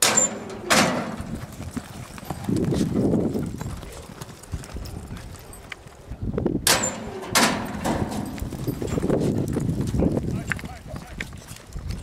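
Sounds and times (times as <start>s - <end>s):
metal gate banging: 0.0s - 1.4s, 6.6s - 8.5s
hoofbeats in dirt: 0.0s - 12.0s.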